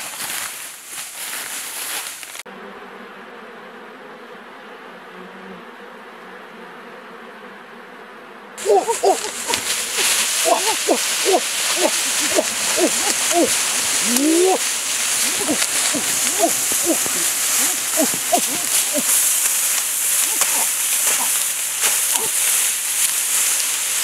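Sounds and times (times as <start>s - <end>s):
short hooting calls: 8.6s - 22.4s
bees humming: 8.6s - 24.0s
loud rustling hiss: 8.6s - 24.0s.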